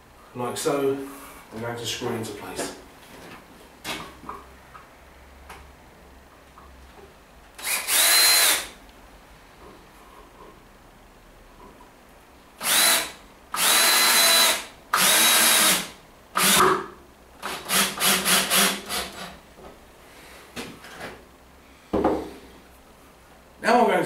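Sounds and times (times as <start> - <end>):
cordless drill motor whining: 7.6 - 8.7, 12.6 - 16.6
drill trigger blips: 7.6 - 8.7, 12.6 - 16.7.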